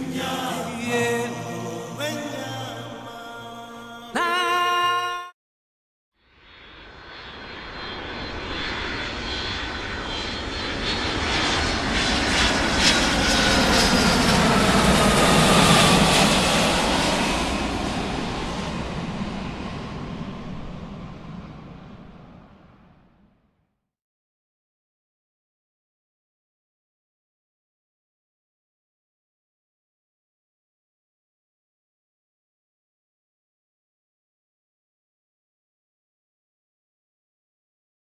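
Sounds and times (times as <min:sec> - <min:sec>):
jet airliner passing overhead: 0:06.4 - 0:23.4.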